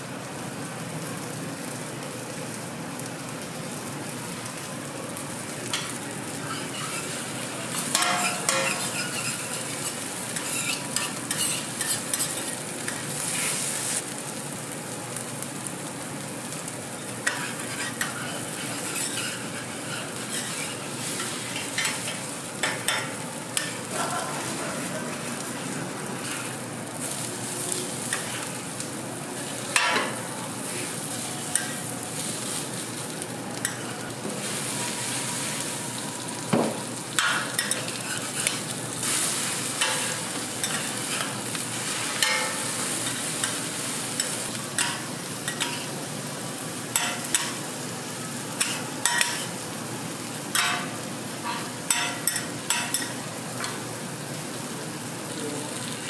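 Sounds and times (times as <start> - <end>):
food sizzling on a griddle: 0.0 - 56.0
metal spatulas scraping and tapping: 7.9 - 12.5, 17.2 - 20.8, 44.2 - 45.8, 48.6 - 49.5.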